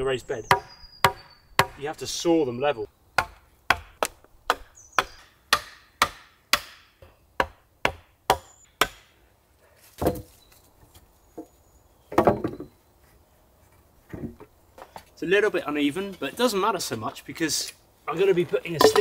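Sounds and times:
axe knocking wooden stakes: 0.5s - 1.8s, 3.2s - 9.1s, 18.8s - 19.0s.

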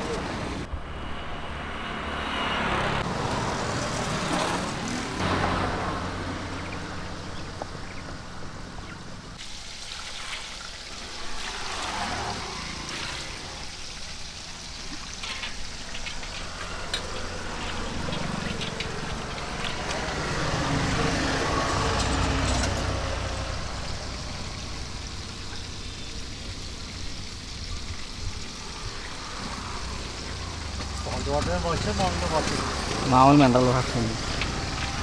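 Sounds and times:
vehicle hum: 0.0s - 9.8s, 10.6s - 35.0s.

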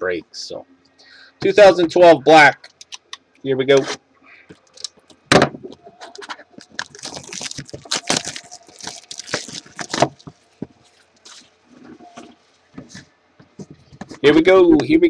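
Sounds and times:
plastic shrink-wrap tearing and crinkling: 6.6s - 11.7s.

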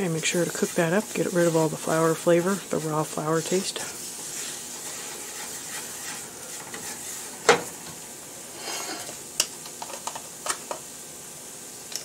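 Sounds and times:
whisk stirring: 0.0s - 7.4s
roux sizzling in skillet: 0.0s - 11.9s.

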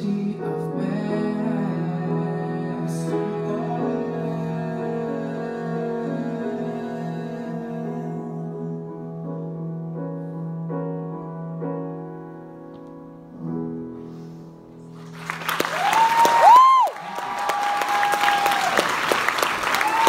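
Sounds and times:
piano chords: 0.0s - 20.0s
audience applause: 15.0s - 20.0s.

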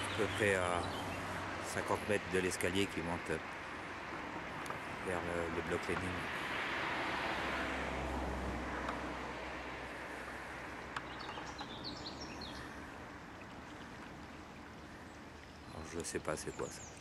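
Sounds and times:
small bird chirping: 11.0s - 12.7s.

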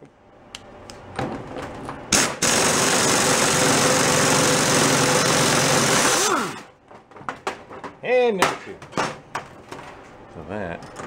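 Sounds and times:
pneumatic impact wrench running: 2.1s - 6.7s.

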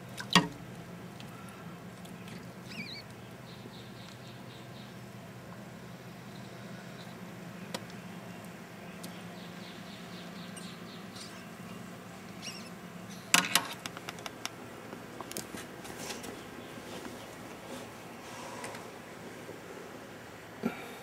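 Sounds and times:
rat squeaking: 2.3s - 3.0s, 12.4s - 12.7s
handling clicks and knocks: 13.4s - 14.6s.

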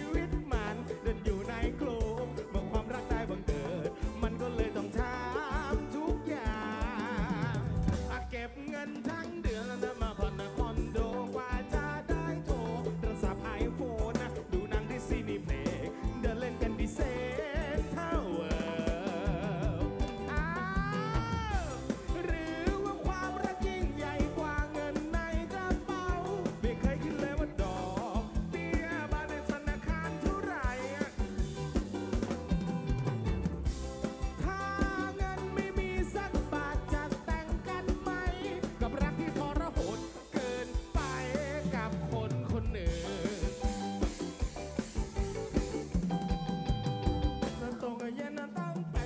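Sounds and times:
live band through loudspeakers: 0.0s - 49.0s
person singing: 0.0s - 49.0s
drum hits: 9.4s - 47.8s.

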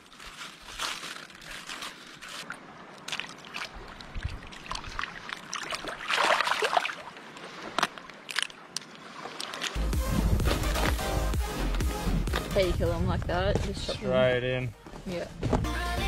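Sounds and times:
water sloshing and trickling: 0.0s - 11.0s.

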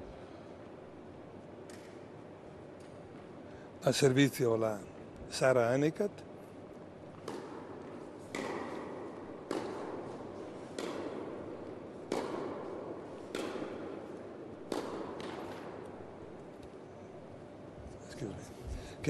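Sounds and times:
racket striking tennis ball: 7.2s - 16.2s.

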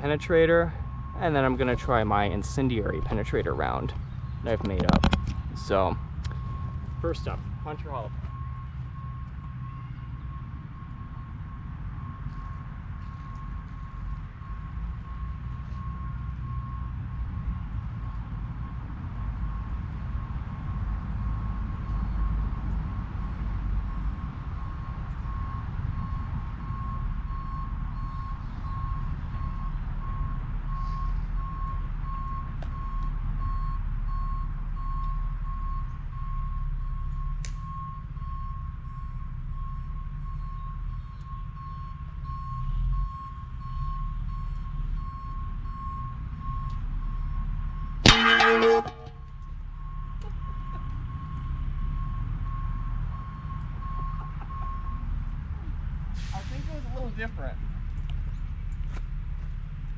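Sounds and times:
metal ringing: 48.0s - 49.3s
airgun slug striking metal plate: 48.1s - 49.2s.

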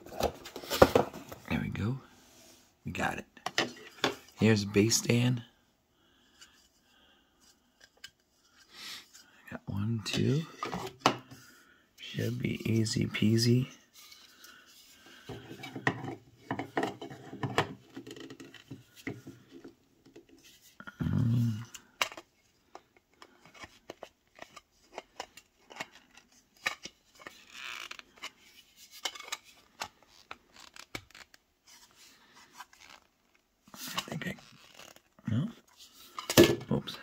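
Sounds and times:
hard plastic clicking and scraping: 21.6s - 31.4s.

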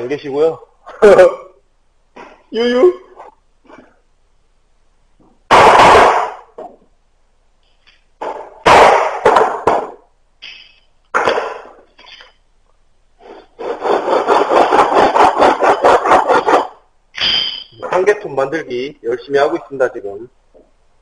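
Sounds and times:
scraping strokes: 13.2s - 16.8s.

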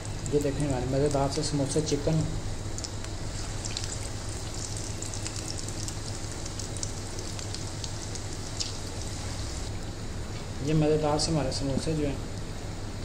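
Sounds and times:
food deep-frying in oil: 0.0s - 10.0s.

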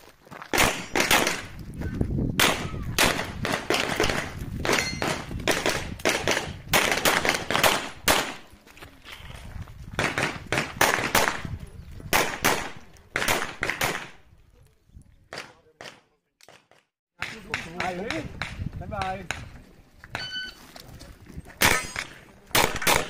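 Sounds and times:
pistol shots: 0.5s - 1.6s, 2.4s - 8.4s, 12.1s - 14.2s, 21.6s - 23.0s.

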